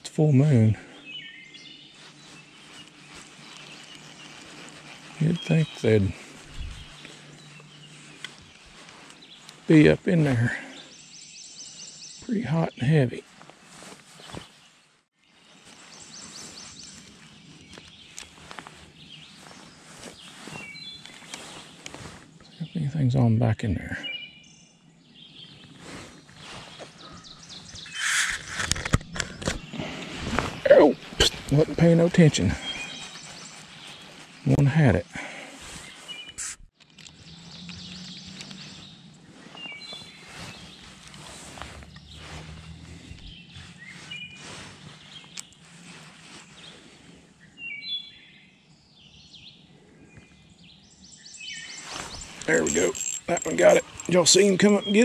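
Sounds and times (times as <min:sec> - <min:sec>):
outdoor background noise: 0:00.0 - 0:55.0
small birds chirping: 0:00.0 - 0:55.0
fishing rod rustling: 0:01.6 - 0:10.4, 0:13.2 - 0:22.4, 0:25.6 - 0:47.1, 0:51.7 - 0:55.0
faint bird calls: 0:32.3 - 0:36.6
brief hiss: 0:36.4 - 0:36.7.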